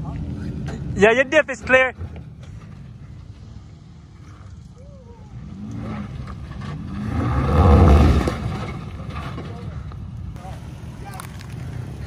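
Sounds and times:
pickup engine revving: 5.4 - 9.4.

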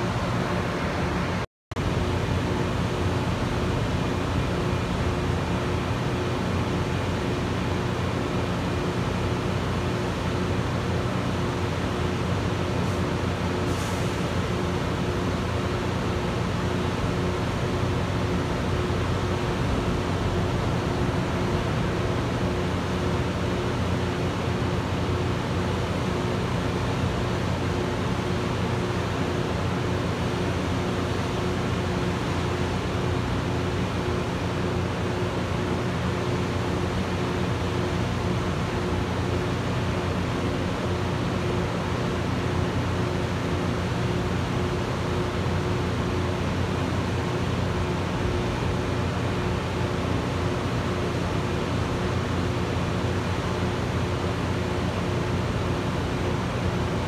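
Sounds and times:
diesel engines droning: 12.4 - 33.6.

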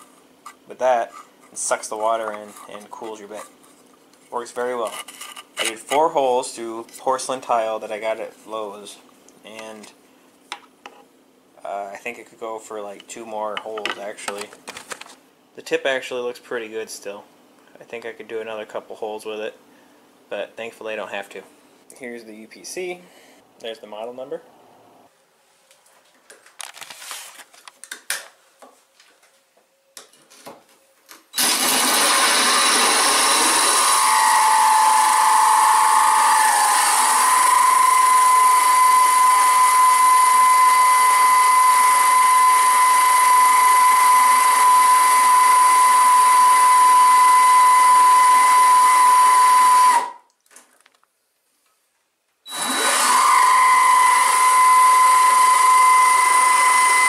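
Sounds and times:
drill grinding through tile: 31.4 - 50.1, 52.5 - 57.0
high-pitched drill whine: 31.4 - 50.2, 52.5 - 57.0.

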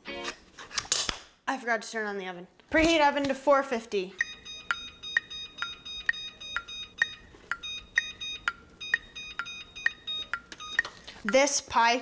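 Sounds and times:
oven control beeping: 4.2 - 11.0.

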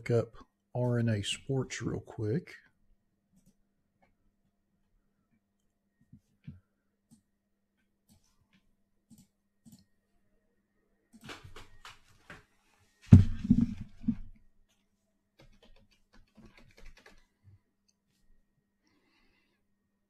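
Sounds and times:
thud: 13.1 - 14.2
typing on computer keyboard: 15.4 - 17.3.

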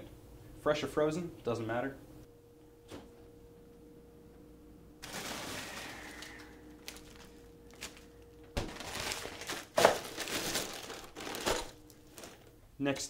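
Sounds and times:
plastic bags rustling: 5.0 - 12.6.

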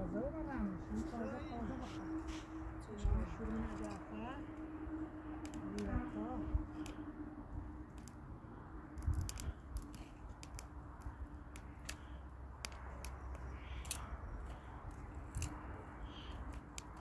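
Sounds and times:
faint low rumble: 0.0 - 17.0
dry twigs snapping: 5.4 - 7.1, 7.8 - 17.0.

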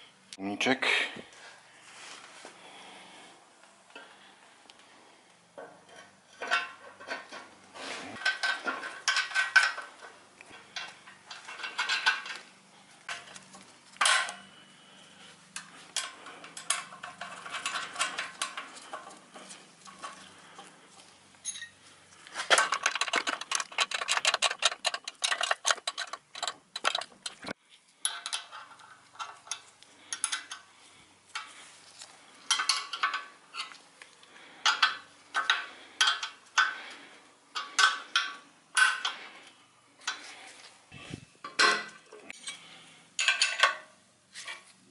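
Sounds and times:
metal clinks of tools and bolts: 15.6 - 20.2, 21.4 - 21.8, 22.5 - 30.7.

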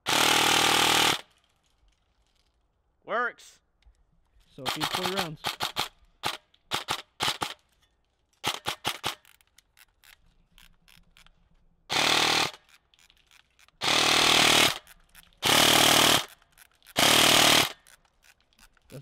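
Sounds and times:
airsoft gun firing: 4.6 - 7.6, 8.4 - 9.2.

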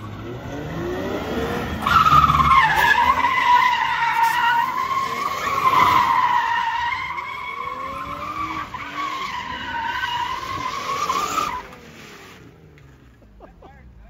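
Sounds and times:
car engine revving: 0.0 - 14.0
tyres squealing: 1.8 - 11.8.

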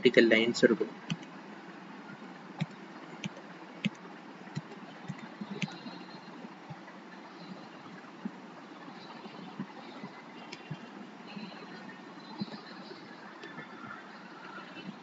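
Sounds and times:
faint hiss and hum: 0.0 - 15.0
computer mouse clicks: 1.1 - 1.3, 2.6 - 6.0.

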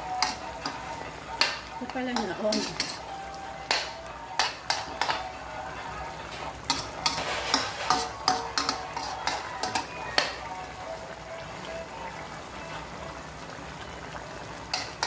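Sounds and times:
spatula clinking in metal wok: 0.0 - 5.3, 6.7 - 10.4, 14.7 - 15.0.

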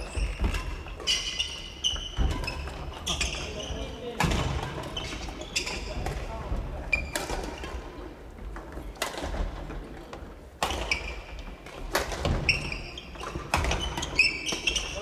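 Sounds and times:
sneakers squeaking on wooden floor: 0.0 - 9.6, 10.6 - 15.0.

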